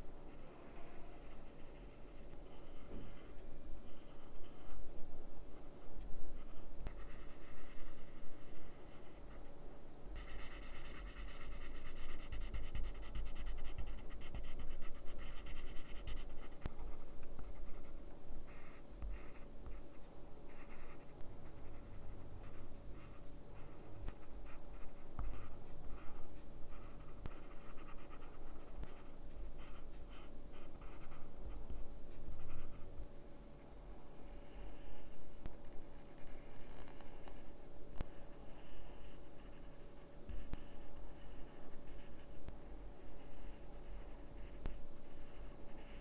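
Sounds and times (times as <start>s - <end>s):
coloured pencils scratching paper: 10.2s - 17.9s.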